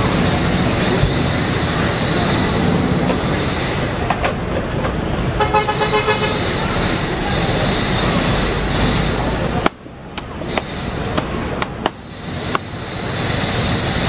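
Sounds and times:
street traffic noise: 0.0s - 14.0s
vehicle horn rapid toots: 5.4s - 6.9s.

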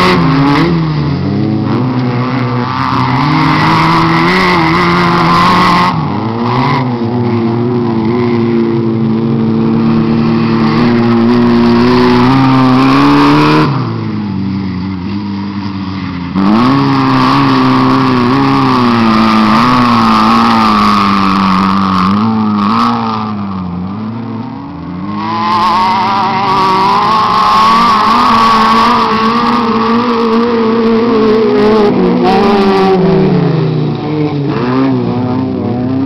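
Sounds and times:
racing buggy engines revving: 0.0s - 36.0s.

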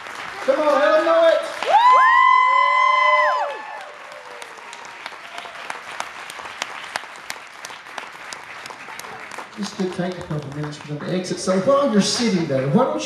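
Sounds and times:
audience applauding: 0.0s - 12.5s
person whooping: 1.6s - 5.6s.

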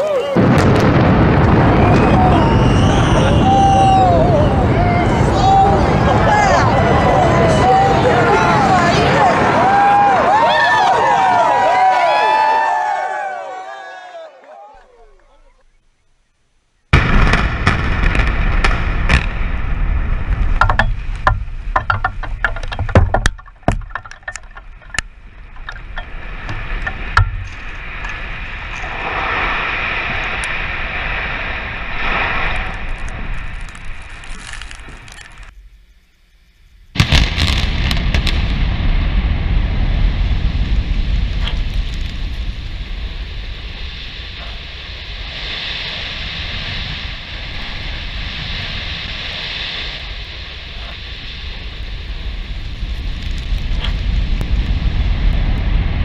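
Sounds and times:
cooling towers collapsing rumble: 0.0s - 13.4s, 16.9s - 35.5s, 36.9s - 56.0s
dust blast rushing noise: 0.0s - 14.3s, 16.9s - 22.7s, 24.6s - 35.6s, 36.9s - 56.0s
debris cracking and knocking: 17.4s - 28.2s, 32.6s - 35.5s
hiss: 41.4s - 54.2s.

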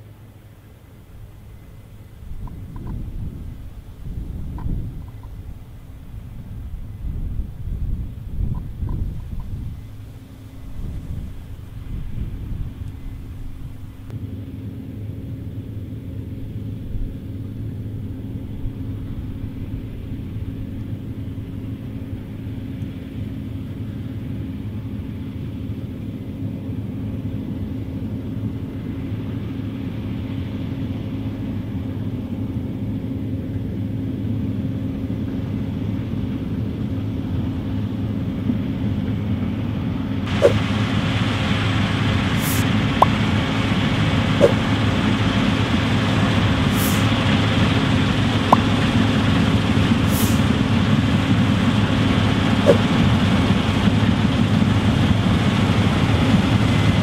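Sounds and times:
combine harvester drone: 0.0s - 57.0s
loud hiss: 40.3s - 48.4s, 50.0s - 50.6s.

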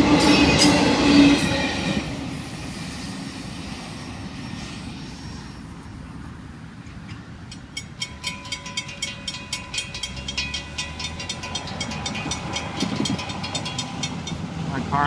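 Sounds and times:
crossing bell ringing: 7.1s - 15.0s.

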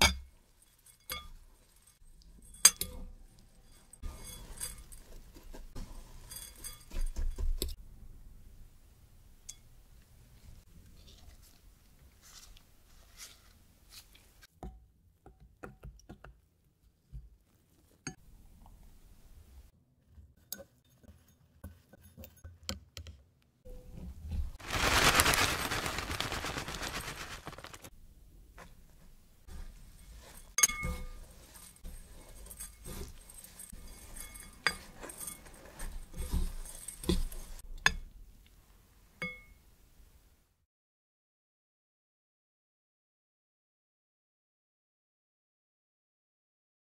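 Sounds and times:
quiet scraping in bowl: 0.4s - 7.7s, 10.4s - 14.5s, 28.6s - 37.6s.

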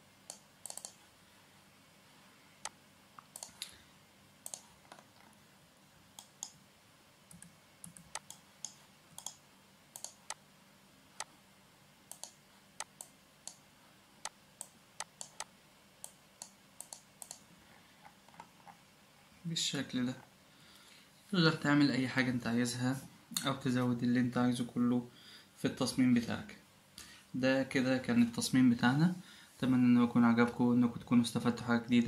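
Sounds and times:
mouse and keyboard clicking: 0.3s - 1.0s, 2.6s - 3.7s, 4.4s - 5.1s, 6.2s - 6.6s, 7.3s - 9.4s, 10.0s - 10.4s, 12.1s - 13.6s, 14.2s - 17.4s.

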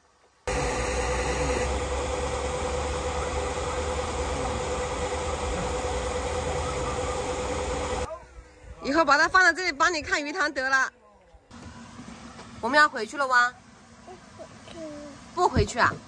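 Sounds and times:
machine running: 0.5s - 8.1s.

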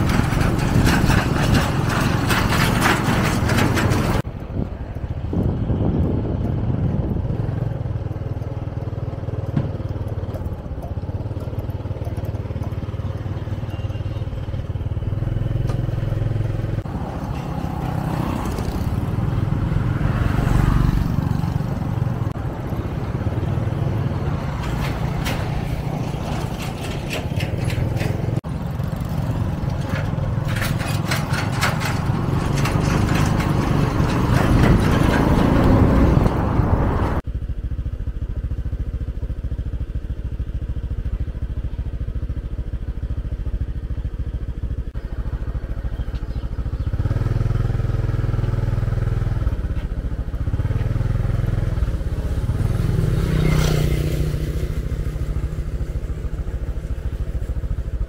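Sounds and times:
rapid clattering: 0.0s - 4.2s, 24.4s - 36.4s
motorbike engine and road rumble: 0.0s - 58.0s.

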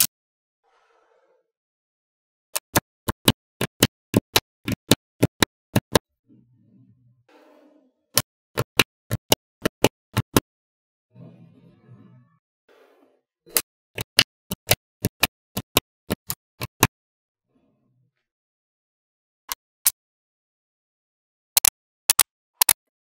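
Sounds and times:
magnetic balls clicking: 2.6s - 6.0s.

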